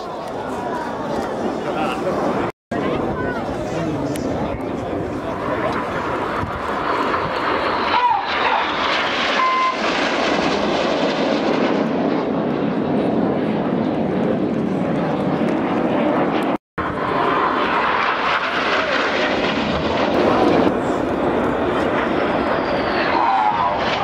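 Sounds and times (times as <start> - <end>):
jets flying past low: 0.0 - 24.0.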